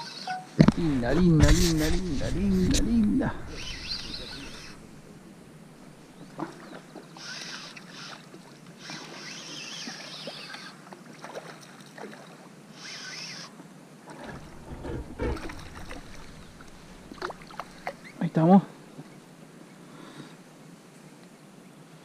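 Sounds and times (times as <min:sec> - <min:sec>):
low bumps: 0:00.6 - 0:06.6, 0:14.3 - 0:18.2
water splashing and sloshing: 0:01.0 - 0:12.6, 0:14.0 - 0:18.3.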